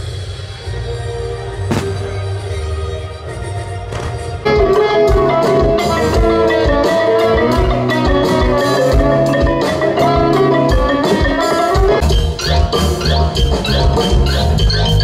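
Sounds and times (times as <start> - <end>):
electric guitars: 4.4 - 15.0
drum kit steady beat: 4.5 - 15.0.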